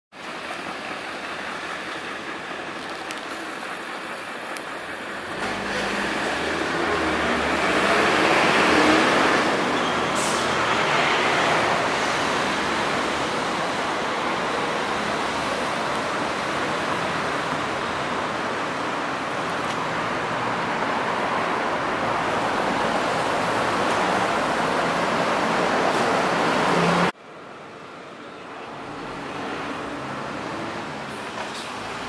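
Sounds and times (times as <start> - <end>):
passing cars: 0.2 - 32.0
vehicle with low engine passing close: 3.4 - 27.2.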